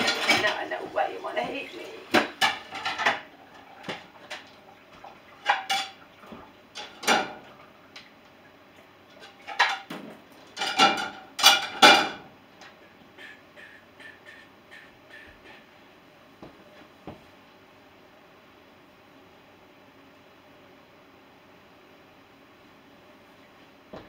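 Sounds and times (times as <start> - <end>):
dishes clinking and clattering: 0.0 - 7.6, 9.1 - 15.8.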